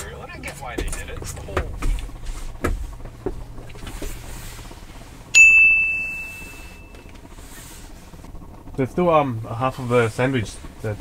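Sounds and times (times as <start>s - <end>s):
low steady hum: 0.0s - 11.0s
bright chime ding: 5.4s - 7.0s.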